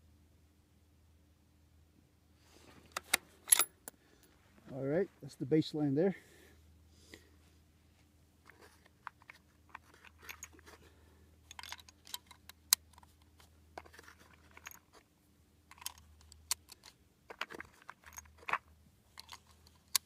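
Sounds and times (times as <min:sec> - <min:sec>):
cartridges clinking in plastic box: 0:03.0 - 0:03.7, 0:09.1 - 0:10.8, 0:11.4 - 0:13.1, 0:13.8 - 0:15.0, 0:15.7 - 0:20.0.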